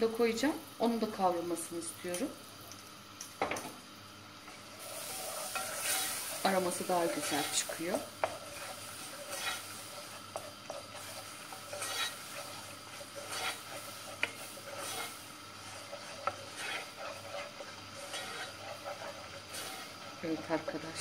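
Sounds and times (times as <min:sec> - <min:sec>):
light sizzle in hot fat: 0:00.0 - 0:21.0
wooden spoon scraping a pot: 0:04.8 - 0:21.0.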